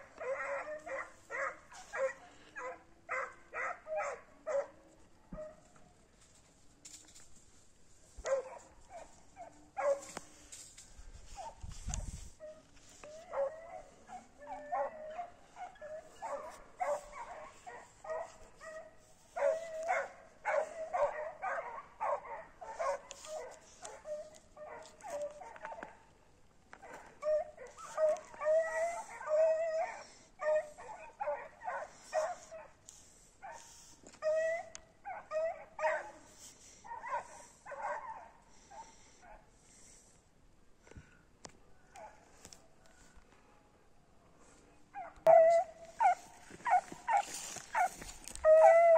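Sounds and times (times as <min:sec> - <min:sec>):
dogs barking and yipping: 0:00.0 - 0:04.7, 0:08.2 - 0:10.2, 0:12.4 - 0:26.0, 0:26.8 - 0:32.8, 0:33.4 - 0:39.4, 0:45.0 - 0:48.9.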